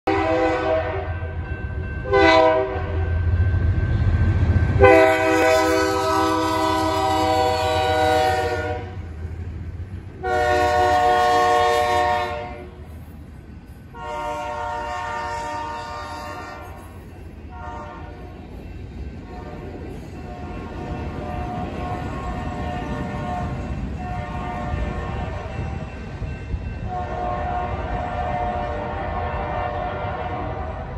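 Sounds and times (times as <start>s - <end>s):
locomotive air horn blasts: 0.1s - 1.3s, 2.1s - 3.1s, 4.8s - 9.0s, 10.2s - 12.8s, 13.9s - 16.8s, 17.5s - 18.2s, 21.3s - 25.6s, 26.9s - 30.9s.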